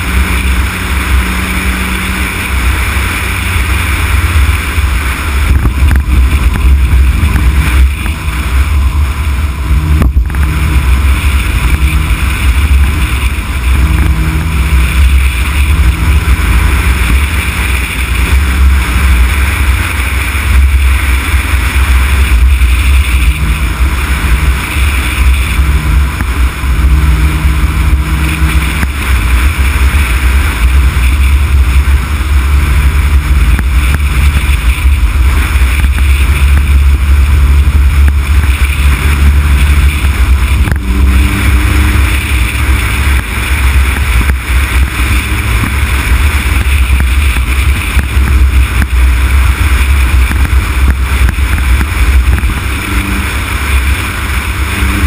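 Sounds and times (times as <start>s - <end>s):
car road and engine noise: 0.0s - 55.0s
wind rumble on microphone: 0.0s - 55.0s.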